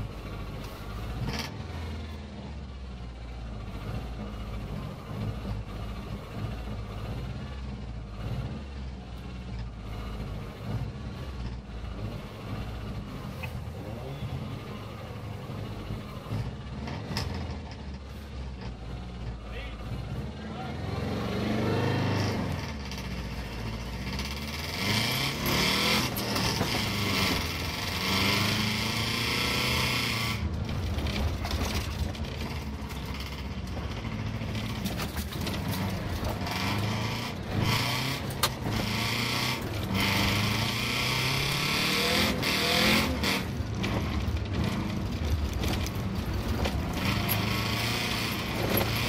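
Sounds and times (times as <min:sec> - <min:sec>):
road and wind noise: 0:00.0 - 0:49.0
car engine revving: 0:18.6 - 0:49.0.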